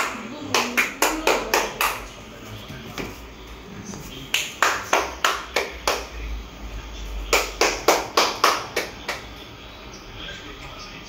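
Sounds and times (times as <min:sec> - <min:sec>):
hand clapping: 0:00.0 - 0:02.1, 0:04.3 - 0:06.1, 0:07.3 - 0:09.4.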